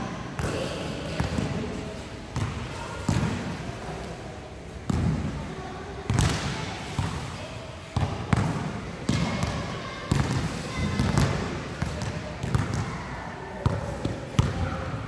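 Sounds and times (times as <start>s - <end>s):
basketballs bouncing on hard court: 2.4s - 3.6s, 8.0s - 12.9s, 13.6s - 14.7s.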